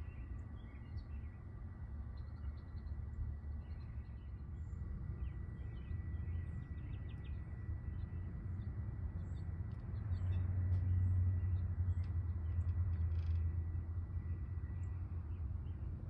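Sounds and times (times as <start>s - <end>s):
low outdoor rumble: 0.0s - 16.0s
faint bird chirps: 9.2s - 15.5s.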